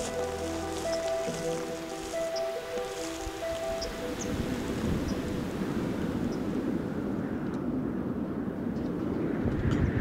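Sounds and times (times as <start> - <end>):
soft background music: 0.0 - 6.8.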